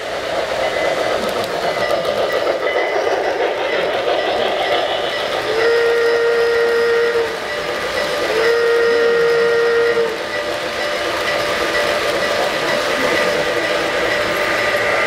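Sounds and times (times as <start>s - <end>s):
model trains running: 0.0s - 15.0s
model train whistle blasts: 5.5s - 7.5s, 8.2s - 10.3s.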